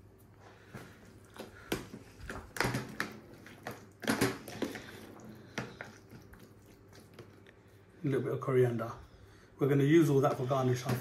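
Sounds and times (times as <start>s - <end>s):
wet mixing: 0.0s - 9.0s
spoon scraping plastic tub: 1.6s - 7.4s.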